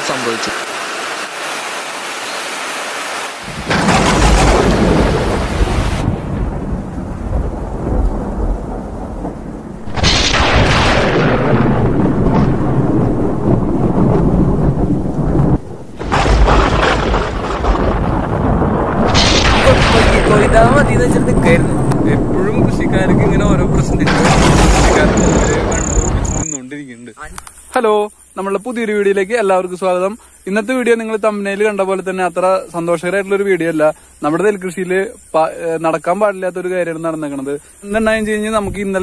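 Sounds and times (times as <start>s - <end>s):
heavy rain: 0.0s - 26.6s
thunder rolling: 3.4s - 26.6s.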